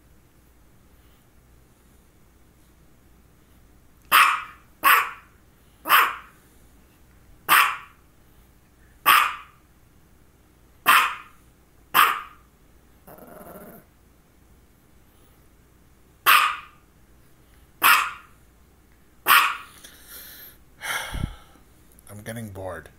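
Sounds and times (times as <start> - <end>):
small dog barking: 4.1 - 6.4, 7.5 - 8.0, 9.0 - 9.6, 10.8 - 12.4, 16.2 - 16.8, 17.8 - 18.4, 19.2 - 19.7.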